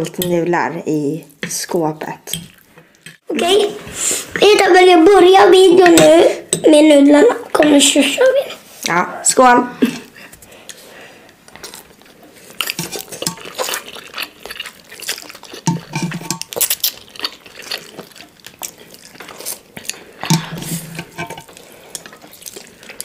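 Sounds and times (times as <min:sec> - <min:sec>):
slurping and chewing: 0:10.5 - 0:23.0
utensils clicking on plates: 0:20.2 - 0:22.2.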